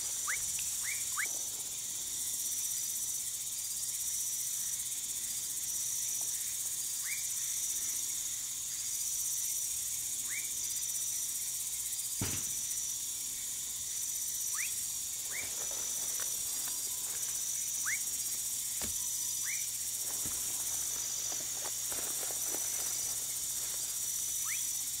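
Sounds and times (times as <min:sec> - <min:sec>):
night insects trilling: 0:00.0 - 0:25.0
frog whistle calls: 0:00.2 - 0:01.3, 0:10.2 - 0:10.5, 0:14.5 - 0:15.5, 0:17.8 - 0:18.1, 0:19.1 - 0:19.7, 0:24.4 - 0:24.8.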